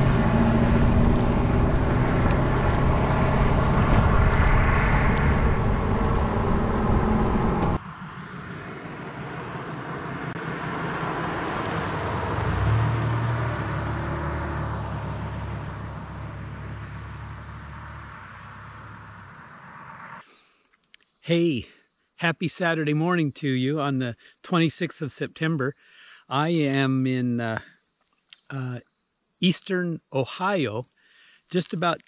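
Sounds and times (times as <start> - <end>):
loud rush of noise: 0.0 - 12.9
vehicle passing by: 0.0 - 20.2
crickets chirring: 7.8 - 32.0.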